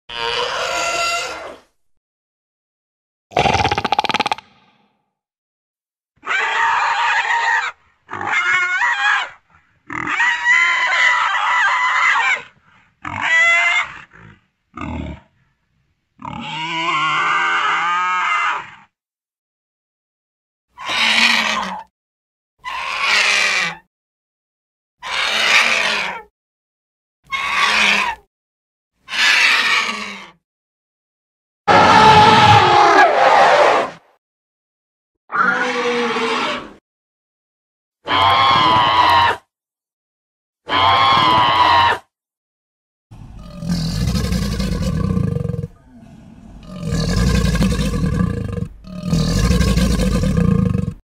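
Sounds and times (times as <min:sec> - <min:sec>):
harsh monster bird calls: 0:22.6 - 0:23.7
deep monster roars: 0:43.1 - 0:51.0.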